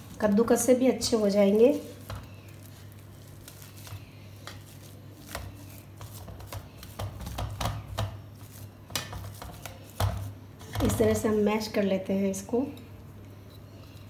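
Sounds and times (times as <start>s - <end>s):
fork mashing potatoes on metal plate: 1.2s - 11.2s.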